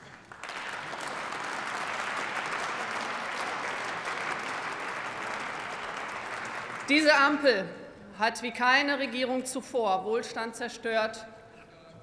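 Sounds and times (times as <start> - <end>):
applause: 0.0 - 7.3.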